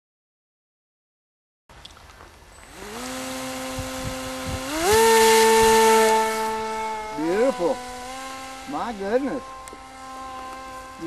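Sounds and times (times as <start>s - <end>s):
model plane motor whining: 2.6s - 11.0s.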